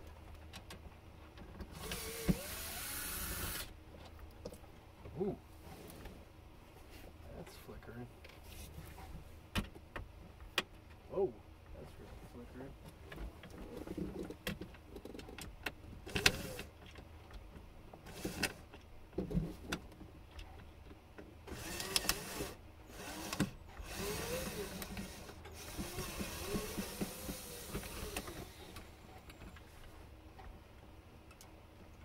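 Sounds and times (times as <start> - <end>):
electric power driver whirring: 1.8 - 3.7, 16.1 - 16.7, 21.5 - 28.9.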